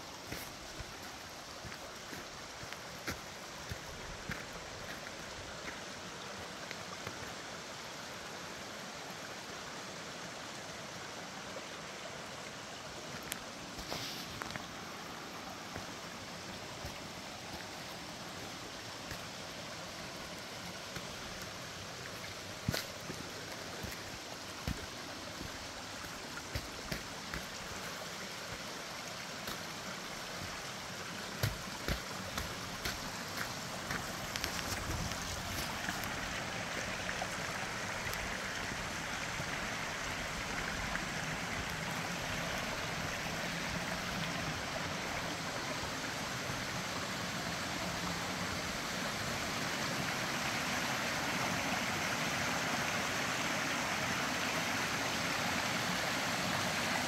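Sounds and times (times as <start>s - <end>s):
rushing creek water: 0.0s - 57.0s.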